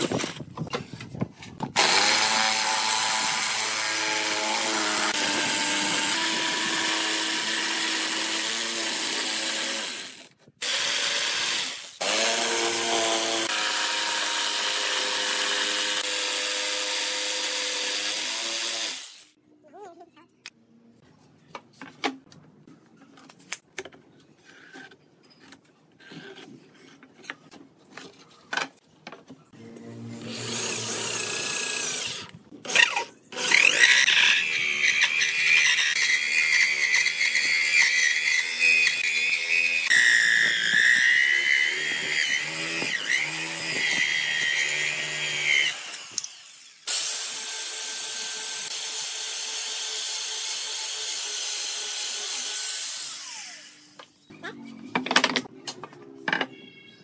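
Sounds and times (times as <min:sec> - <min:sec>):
electric drill cutting wood: 0:01.8 - 0:19.4, 0:30.0 - 0:54.0
electric grinder sanding: 0:01.8 - 0:19.4, 0:30.0 - 0:54.0.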